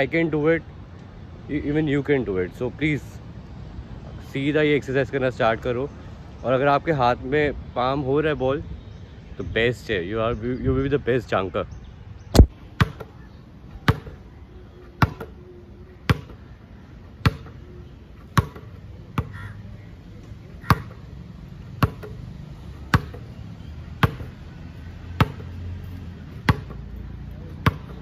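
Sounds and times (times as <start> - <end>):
basketball bouncing: 12.4 - 13.1, 13.9 - 14.2, 15.0 - 15.3, 16.1 - 16.4, 17.2 - 17.6, 18.3 - 19.4, 20.6 - 21.1, 21.8 - 22.2, 22.9 - 23.3, 24.0 - 24.4, 25.2 - 25.6, 26.3 - 26.8, 27.6 - 28.0.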